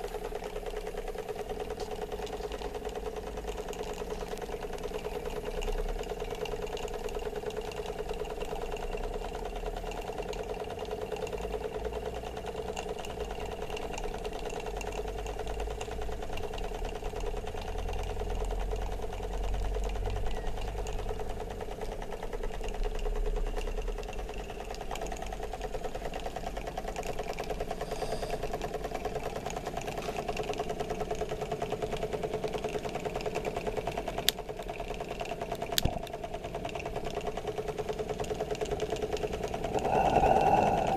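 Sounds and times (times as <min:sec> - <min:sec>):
model steam engine running: 0:00.0 - 0:40.9
low rumble: 0:39.3 - 0:40.9.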